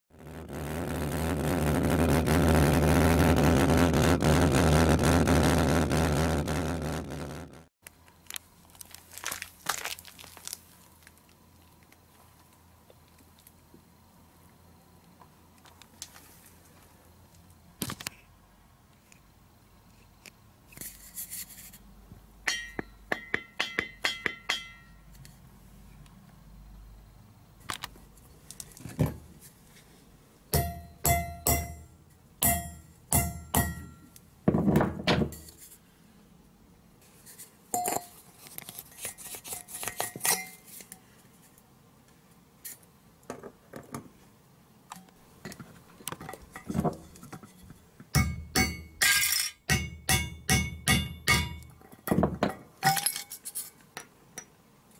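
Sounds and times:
hammer striking metal can: 22.5s - 24.9s, 30.6s - 34.0s, 48.2s - 53.2s.

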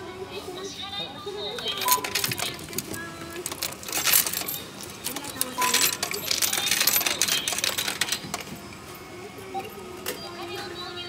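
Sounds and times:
coins clinking in coin slot: 1.6s - 8.8s.

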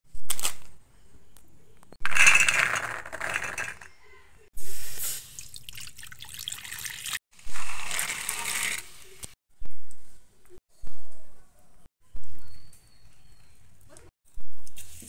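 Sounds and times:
water pouring and splashing: 5.0s - 9.2s.

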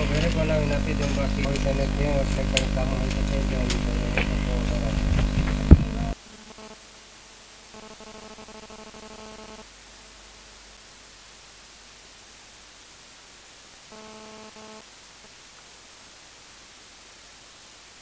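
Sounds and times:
faint droning tone: 0.0s - 7.6s
faint background hiss: 0.0s - 18.0s.

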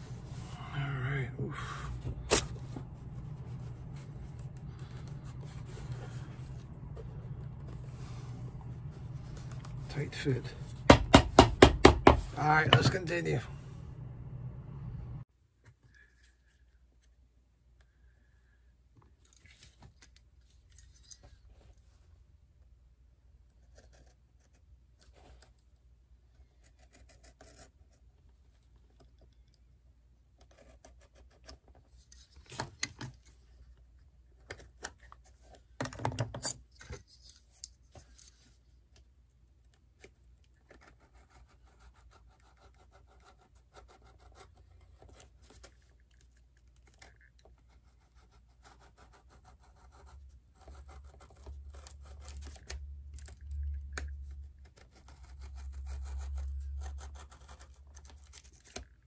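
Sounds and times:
low hum: 0.0s - 11.0s, 12.3s - 15.2s
sharp knocks: 10.9s - 12.9s.

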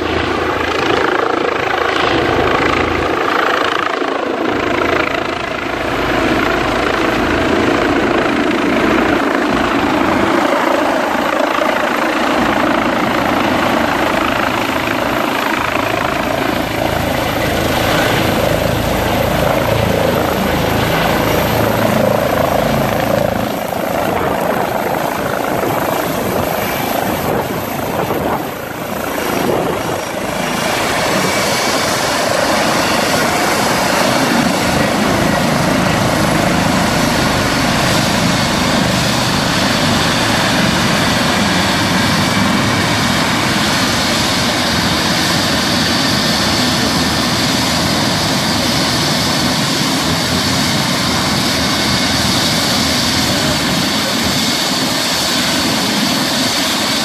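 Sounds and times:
helicopter rotor whoosh: 0.0s - 57.0s
high turbine whine: 0.0s - 57.0s.

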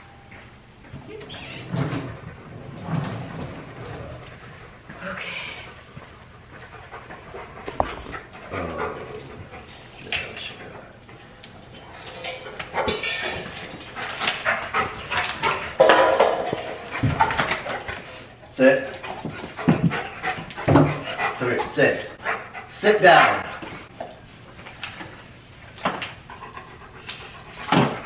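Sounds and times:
dog panting: 4.1s - 11.8s, 12.6s - 15.8s, 16.7s - 24.2s, 25.6s - 28.0s.

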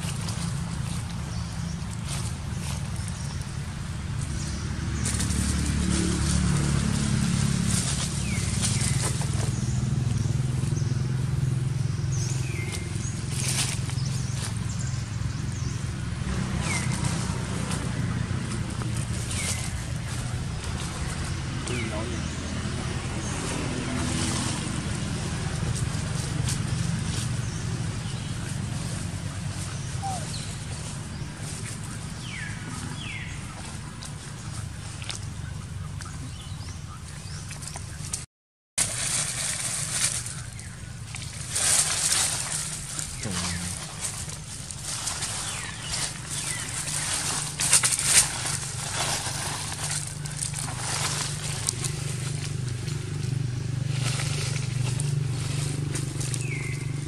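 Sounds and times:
dry leaves crackling and rustling: 0.0s - 38.2s, 38.8s - 57.0s
low outdoor rumble: 0.0s - 57.0s.

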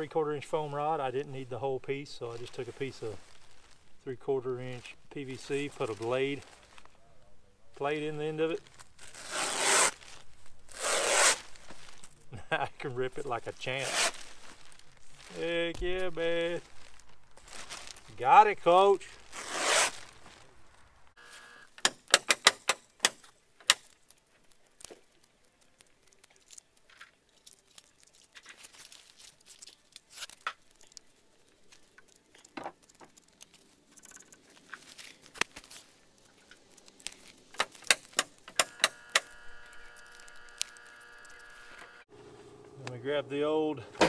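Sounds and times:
foam rod clicks and crackles: 21.8s - 41.9s.

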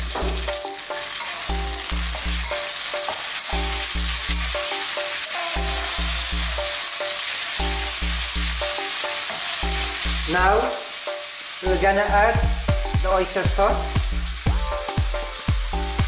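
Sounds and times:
background music with bass line: 0.0s - 0.9s, 1.5s - 2.6s, 3.5s - 4.7s, 5.6s - 6.7s, 11.6s - 16.0s
meat and onion sizzling in a wok: 0.0s - 16.0s.

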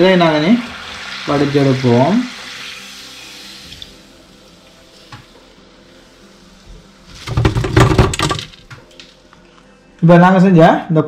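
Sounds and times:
hot oil sizzling: 0.0s - 8.6s.

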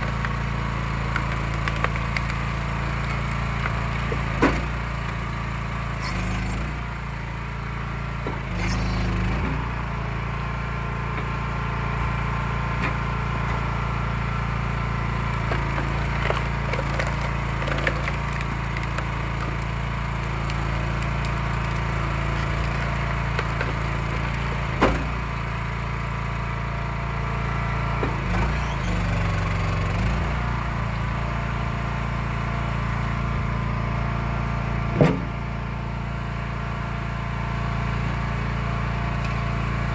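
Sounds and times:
wood splitting cracks: 0.0s - 5.2s, 15.2s - 25.3s
small gasoline engine running: 0.0s - 39.9s.

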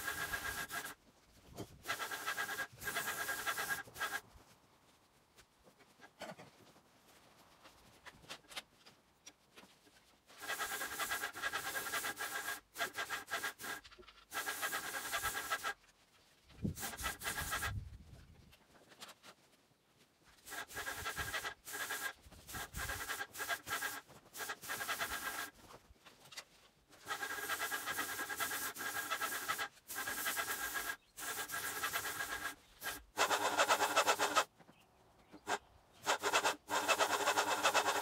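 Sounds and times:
paint sprayer hissing with high whine: 0.0s - 1.0s, 1.9s - 4.2s, 27.0s - 34.5s, 36.0s - 38.0s.

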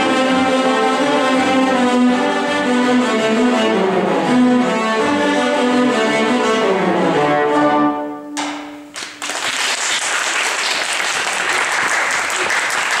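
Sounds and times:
cello ensemble playing chords: 0.0s - 8.9s
audience applause: 9.0s - 13.0s.

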